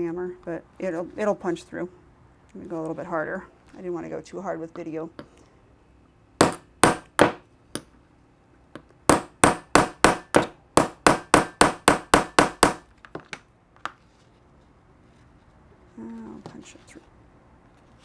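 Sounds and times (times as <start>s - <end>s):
hammer striking punch into wood: 6.4s - 7.4s, 9.1s - 12.8s.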